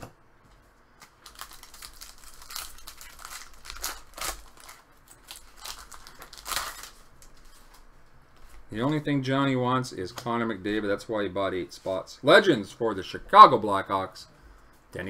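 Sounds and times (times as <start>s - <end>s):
foil wrapper crinkling and tearing: 1.0s - 7.8s
cards rustling: 1.0s - 9.1s.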